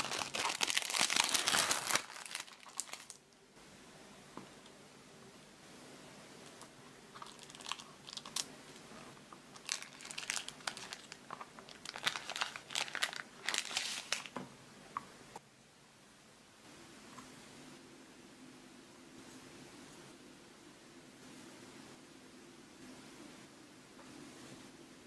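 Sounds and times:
plastic film wrapper crinkling: 0.0 - 3.3, 7.1 - 8.5, 9.5 - 14.4.

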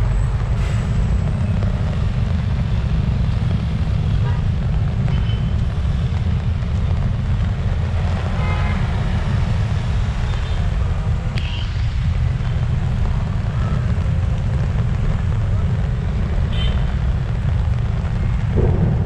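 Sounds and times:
driving rain hissing: 0.0 - 19.0
traffic on flooded road: 0.0 - 19.0
wind buffeting microphone: 10.8 - 19.0.

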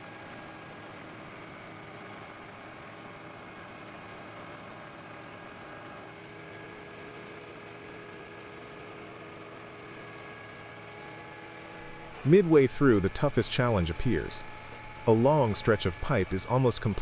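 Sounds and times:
faint steady whining tones: 0.0 - 17.0
vacuum truck engine humming: 5.3 - 17.0.

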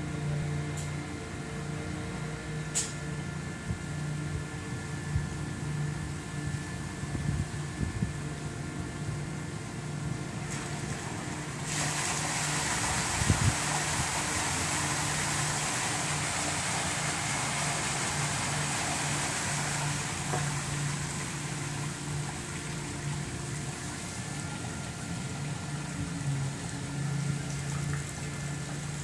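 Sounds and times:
waterfall splashing into pool: 10.5 - 21.5.

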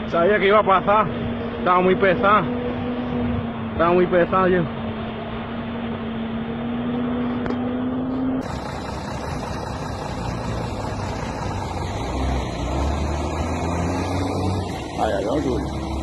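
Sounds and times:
diesel truck engine running: 8.4 - 16.0
steady hum: 8.4 - 16.0.

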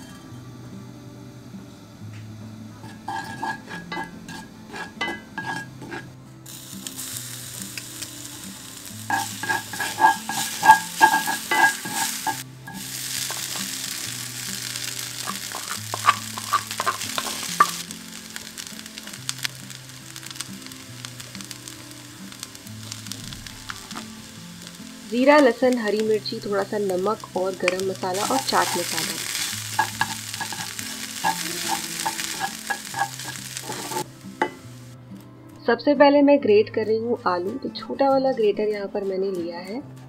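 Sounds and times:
seeds sizzling in hot oil: 0.0 - 0.2, 2.4 - 35.0
soft background music: 0.0 - 40.0
stirring in skillet: 2.8 - 34.6.

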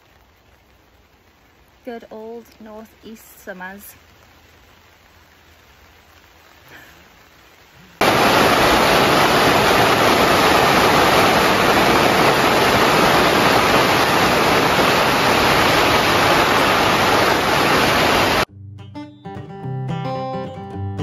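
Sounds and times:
heavy rain on plastic cover: 0.0 - 18.5.

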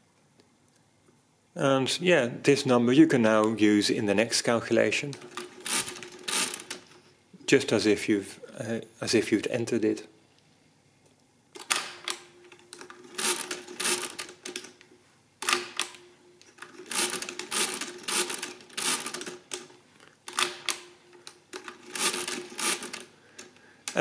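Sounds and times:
mechanical calculator being cranked: 5.2 - 6.8, 12.7 - 14.7, 16.6 - 19.7, 21.6 - 23.1.

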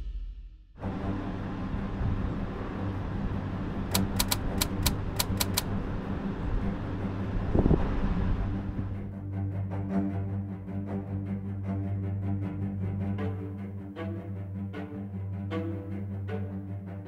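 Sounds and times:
car engine humming: 0.8 - 9.1
typewriter key clicks: 3.9 - 5.7.

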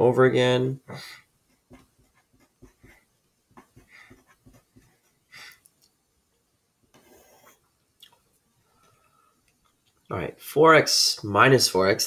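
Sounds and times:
pen scratching on paper: 1.4 - 5.3, 6.9 - 7.6.

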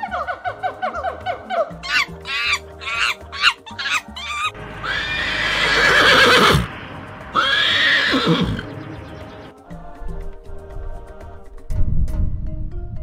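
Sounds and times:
horse whinnying: 1.8 - 6.7, 7.4 - 8.7.

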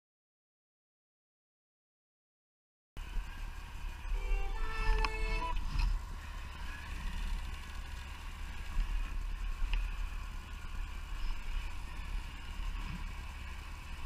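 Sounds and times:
motorcycle engine low rumble: 3.0 - 14.0.

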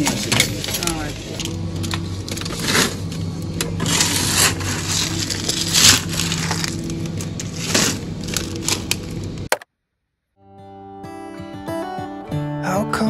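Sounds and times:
plastic scoop rustling: 0.1 - 9.5
plastic bag crinkling: 0.5 - 9.5
background music: 10.4 - 13.0.

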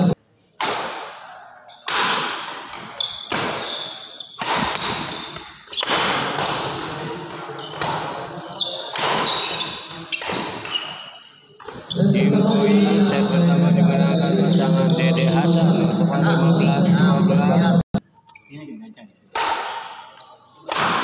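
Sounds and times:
rackets hitting shuttlecock: 0.6 - 7.1, 7.7 - 10.9, 19.3 - 21.0
shoes squeaking on wooden court: 2.6 - 12.0.

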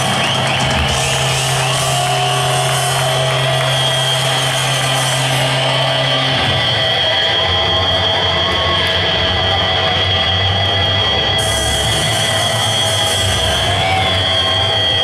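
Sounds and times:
heavy metal band playing: 0.0 - 15.0.

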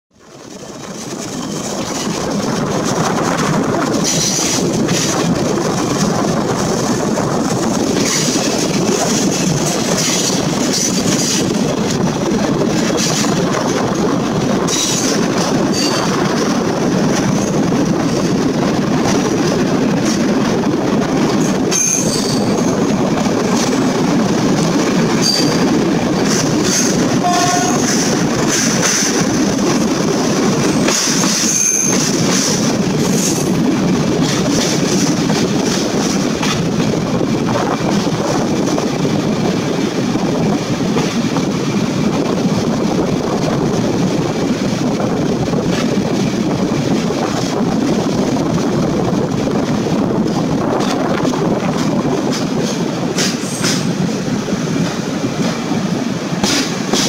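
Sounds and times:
train wheels rumbling on rails: 0.1 - 57.0
rushing air: 0.5 - 57.0
high-pitched wheel squeals: 25.2 - 25.6.

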